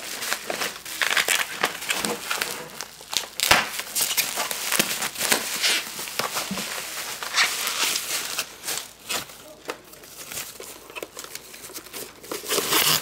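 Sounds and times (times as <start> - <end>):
bubble wrap crinkling: 0.0 - 13.0
bubble wrap snap: 3.1 - 6.6.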